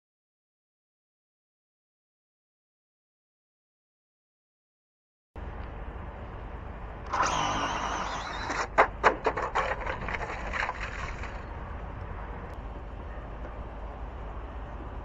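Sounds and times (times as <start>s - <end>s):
rc car motor and tyres: 7.0s - 12.5s.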